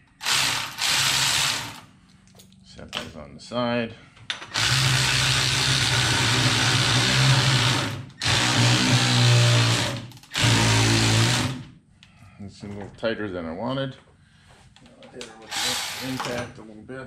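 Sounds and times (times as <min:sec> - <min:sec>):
cordless power ratchet running: 0:00.2 - 0:01.8, 0:04.6 - 0:11.6, 0:15.5 - 0:16.2.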